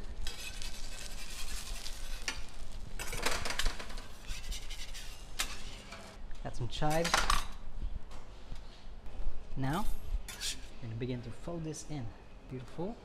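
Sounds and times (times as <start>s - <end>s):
egg sizzling: 0.2s - 5.6s
metal spatulas scraping griddle: 0.2s - 6.1s, 10.3s - 10.7s.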